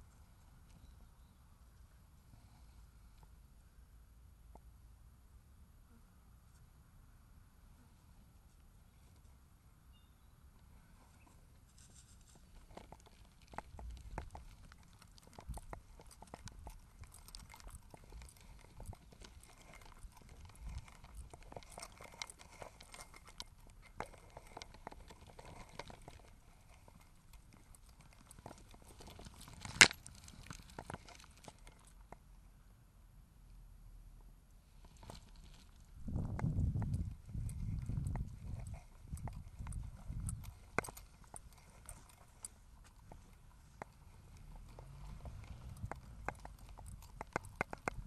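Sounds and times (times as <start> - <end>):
clicks and rustles: 10.6 - 32.3, 34.8 - 48.0.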